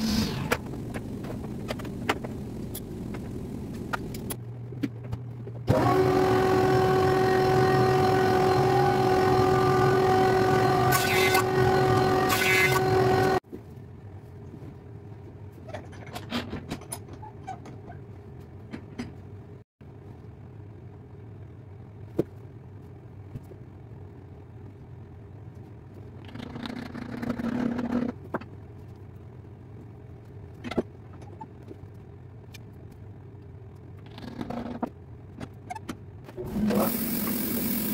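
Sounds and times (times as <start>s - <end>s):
low workshop background: 0.0s - 37.9s
jointer-planer running: 5.7s - 13.4s.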